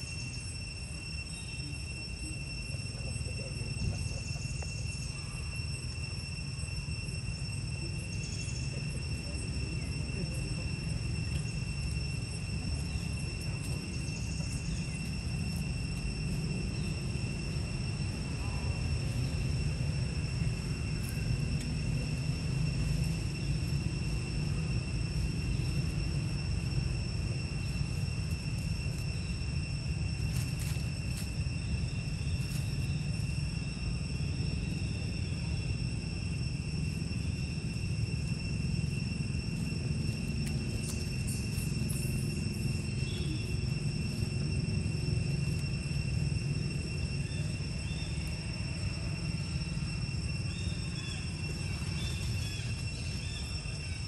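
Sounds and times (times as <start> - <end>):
high insect drone: 0.0 - 54.0
low continuous rumble: 0.0 - 54.0.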